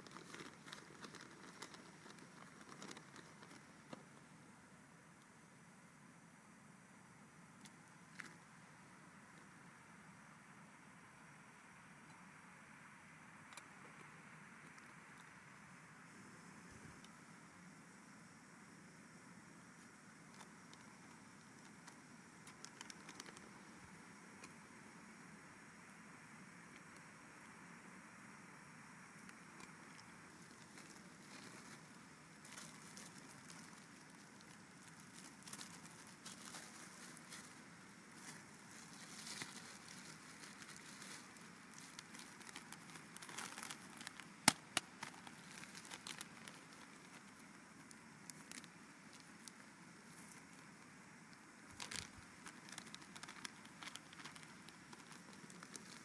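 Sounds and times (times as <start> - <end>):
faint crinkling and rustling: 0.0 - 4.4, 19.6 - 24.6, 29.0 - 56.0
steady low hiss: 0.0 - 56.0.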